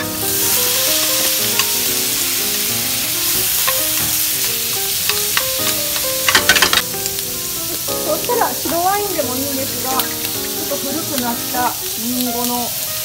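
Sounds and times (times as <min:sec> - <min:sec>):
shrimp sizzling in frying pan: 0:00.0 - 0:13.0
soft background music: 0:00.0 - 0:13.0.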